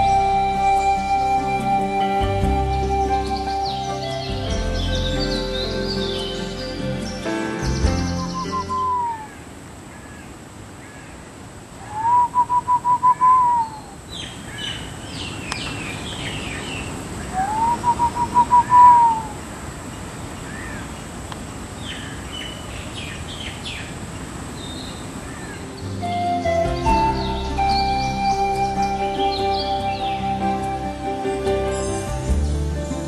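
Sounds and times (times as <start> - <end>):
soft bird chirps and twitters: 2.8 - 9.3.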